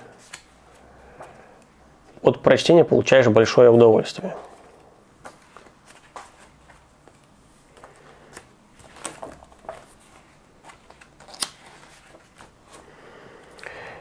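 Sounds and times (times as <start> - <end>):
paper rustling: 5.2 - 12.8
page snapping: 8.4 - 9.9, 10.7 - 12.5.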